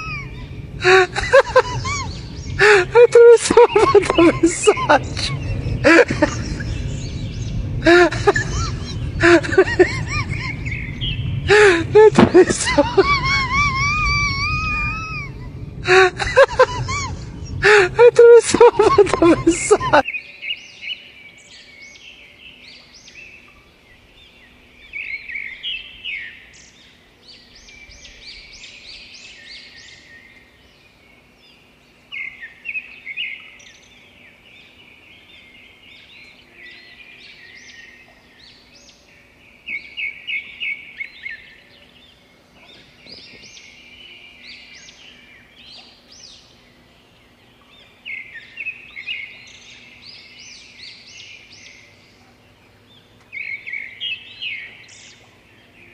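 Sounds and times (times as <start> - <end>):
faint low hum: 0.0 - 20.7
small birds chirping: 0.0 - 55.9.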